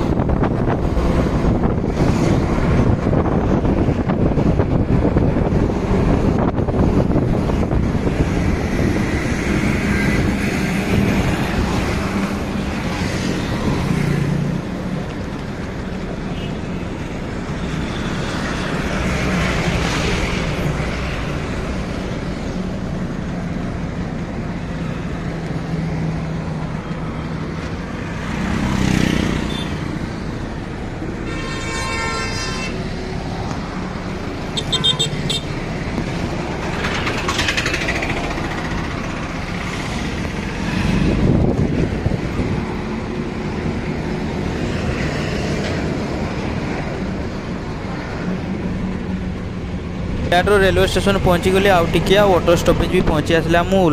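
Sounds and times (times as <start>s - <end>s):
traffic engine hum and tyre noise: 0.0s - 53.9s
vehicles passing: 0.0s - 53.9s
vehicle horn honking: 31.2s - 32.9s, 34.6s - 35.5s.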